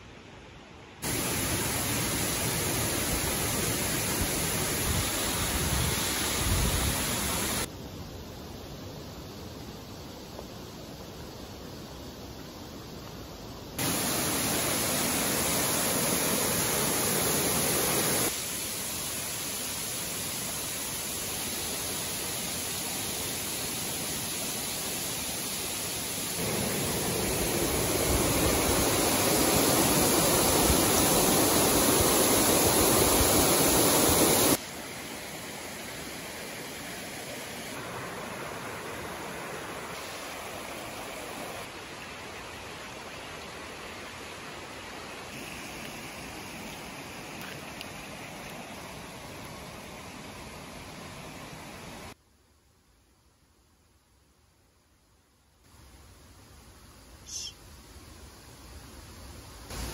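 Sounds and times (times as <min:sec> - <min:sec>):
stream running over rocks: 0:01.0 - 0:08.0, 0:09.0 - 0:52.2, 0:57.7 - 0:59.9.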